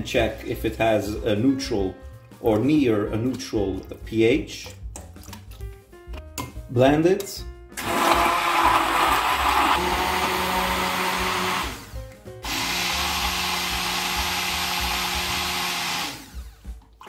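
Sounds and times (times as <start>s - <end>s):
stick blender running: 7.8s - 17.0s.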